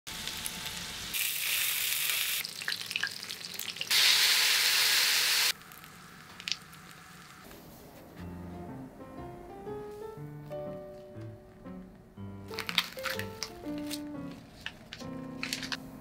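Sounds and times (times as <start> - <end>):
sauce hissing in hot pan: 0.1 - 2.4, 3.9 - 7.4
oil sizzling in pans: 0.1 - 7.5.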